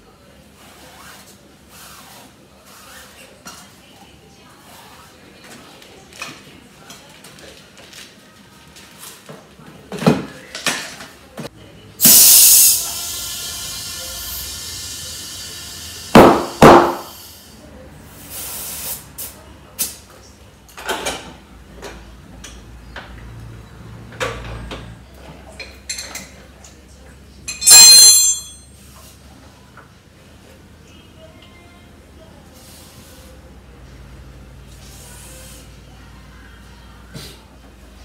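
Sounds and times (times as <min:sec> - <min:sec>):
short hiss with high ringing: 0:12.0 - 0:12.9, 0:27.6 - 0:28.6
loud sound with ringing tone: 0:27.6 - 0:28.7.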